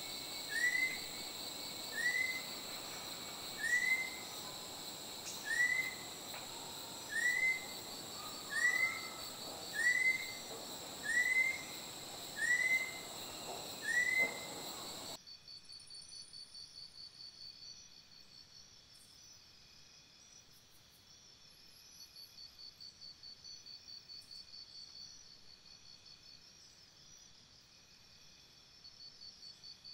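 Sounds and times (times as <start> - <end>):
forest insects droning: 0.0 - 29.9
bird whistles: 0.5 - 1.1, 1.9 - 2.5, 3.6 - 4.3, 5.4 - 6.1, 7.1 - 10.4, 11.0 - 11.7, 12.4 - 13.1, 13.8 - 14.9.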